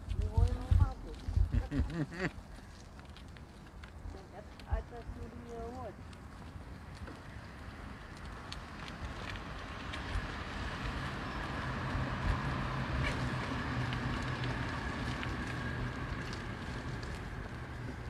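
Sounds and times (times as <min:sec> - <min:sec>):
wind noise on microphone: 0:00.0 - 0:02.3.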